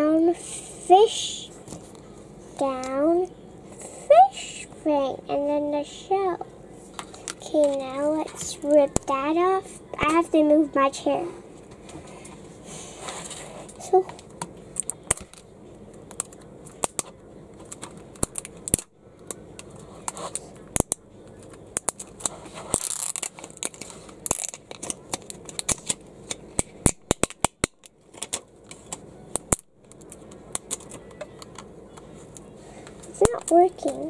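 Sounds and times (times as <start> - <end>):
wrapper crinkling rips: 21.8 - 31.0
plastic wrapper crackling: 21.8 - 31.6.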